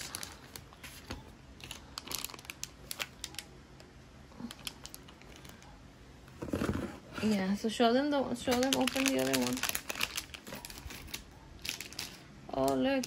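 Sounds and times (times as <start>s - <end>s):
plastic package crinkling: 0.0s - 3.5s, 4.4s - 5.7s, 8.4s - 13.0s.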